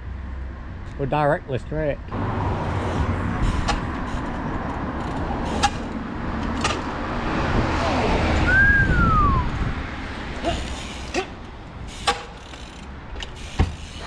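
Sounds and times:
traffic rumble: 0.0s - 14.0s.

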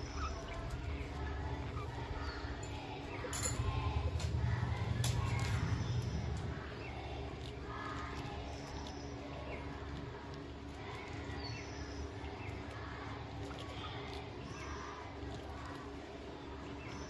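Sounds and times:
budgerigars chirping: 0.0s - 2.4s
low background hum: 0.0s - 17.0s.

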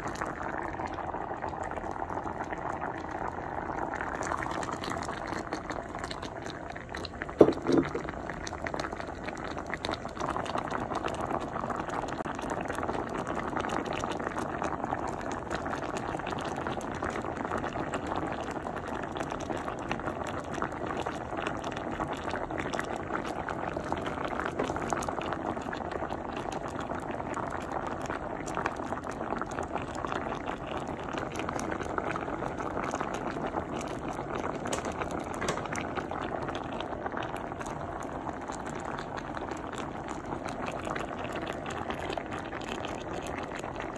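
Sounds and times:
soup bubbling in a pot: 0.0s - 43.9s
short knocks: 7.4s - 8.2s.

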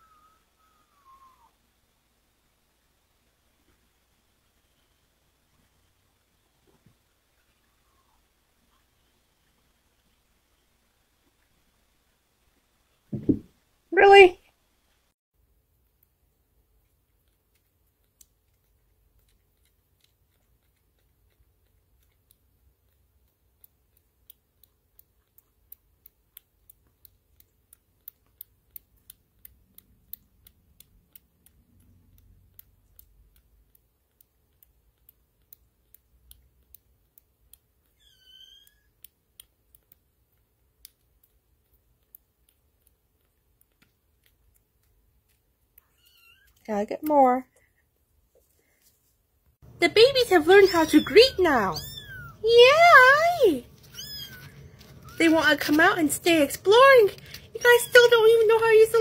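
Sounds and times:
kitten suckling clicks and smacks: 15.7s - 47.2s, 53.7s - 59.0s
kitten mewing: 50.5s - 55.3s.

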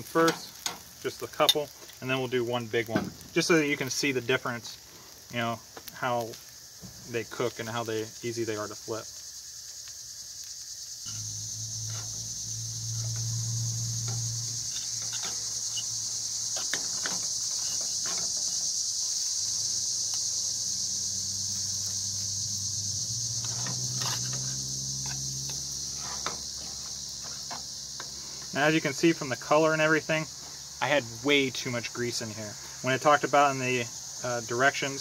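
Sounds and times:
steady high hiss: 0.0s - 35.0s
low hum: 11.1s - 16.3s
fork scraping and tapping skillet: 14.0s - 16.0s, 16.6s - 18.5s, 23.4s - 28.2s.

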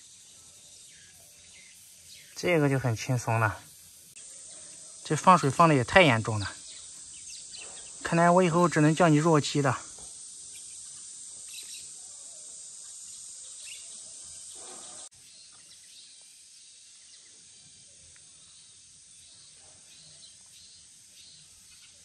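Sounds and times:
steady high hiss: 0.0s - 22.0s
faint bird chirps: 10.4s - 22.0s.

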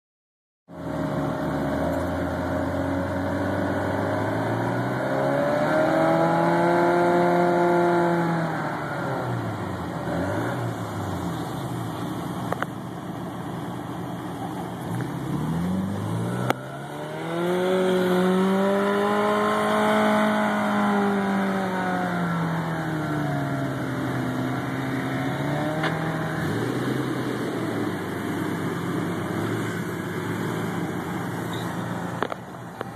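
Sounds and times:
off-road vehicle engine revving: 0.7s - 12.7s, 14.4s - 32.9s.

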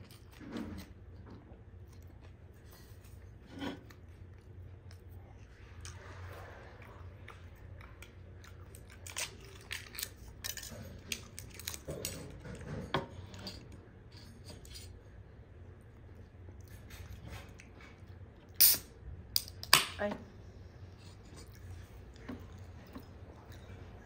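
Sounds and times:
chewing with wet clicks: 1.2s - 12.3s, 21.1s - 24.0s.

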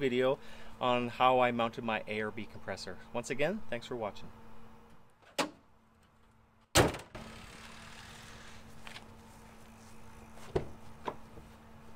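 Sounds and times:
truck hood slamming shut: 6.7s - 7.2s.

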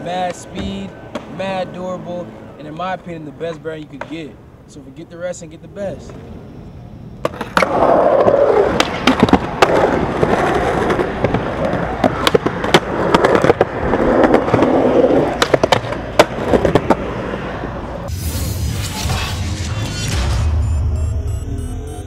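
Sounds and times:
skateboard clacking on ground: 3.5s - 4.3s, 7.2s - 17.2s
skateboard rolling on concrete: 5.9s - 18.1s.

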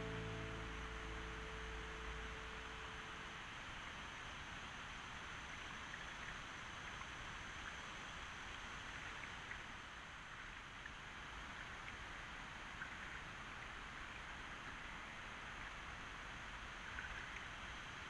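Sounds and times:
steady hiss: 0.0s - 9.9s
paddle water drips and trickles: 0.0s - 18.0s.

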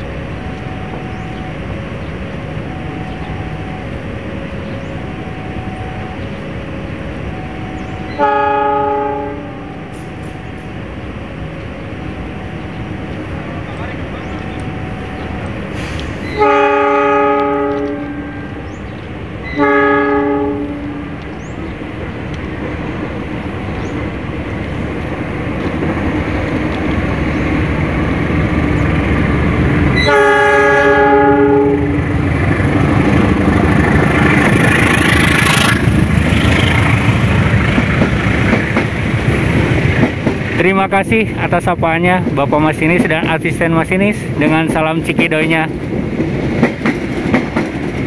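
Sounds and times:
train rumble and wheel clatter: 0.0s - 48.0s
locomotive horn blasts: 7.5s - 10.6s, 16.2s - 18.6s, 19.5s - 21.2s, 30.0s - 32.0s.

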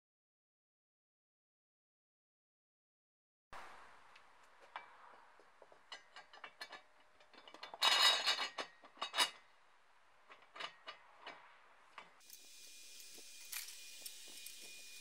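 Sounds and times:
metal rattle: 5.6s - 9.5s, 10.2s - 12.2s.

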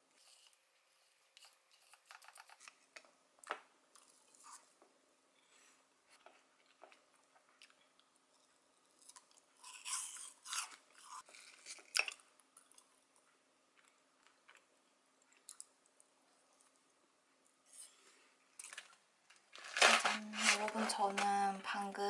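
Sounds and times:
crunchy chewing: 6.2s - 14.7s.

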